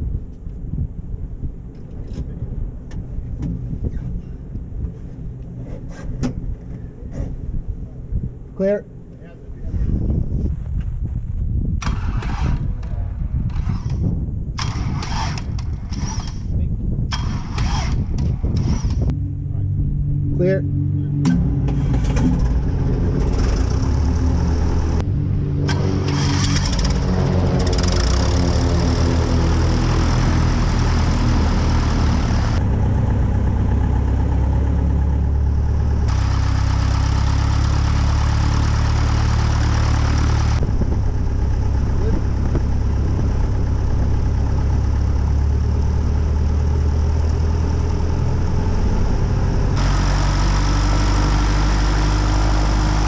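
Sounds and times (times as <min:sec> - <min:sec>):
aircraft engine idling: 0:17.1 - 0:53.0.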